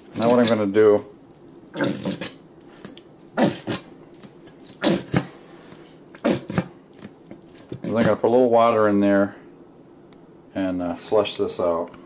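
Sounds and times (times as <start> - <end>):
squeeze bottle sputtering: 0.0 - 0.6, 1.7 - 2.4, 6.1 - 8.2.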